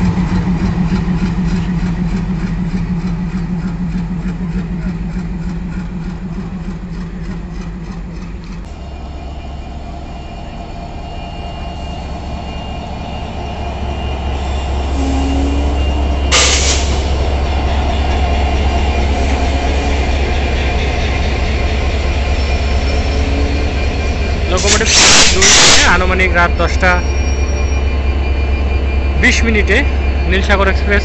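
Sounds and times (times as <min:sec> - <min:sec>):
diesel locomotive engine rumbling: 0:00.0 - 0:31.0
loud burst of noise: 0:24.6 - 0:26.1.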